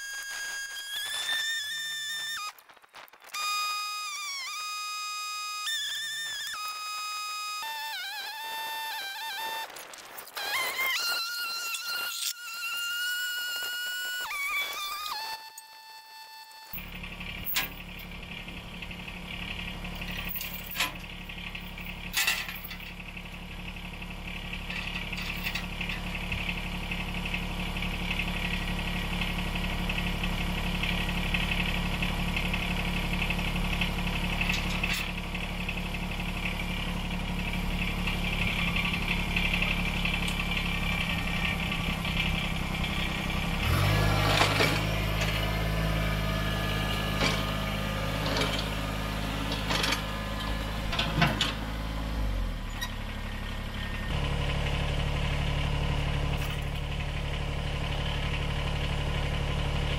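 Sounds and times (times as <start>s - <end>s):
metallic chain clanks: 16.7s - 18.1s, 19.9s - 23.0s, 24.7s - 26.1s
tractor diesel engine idling: 16.7s - 59.9s.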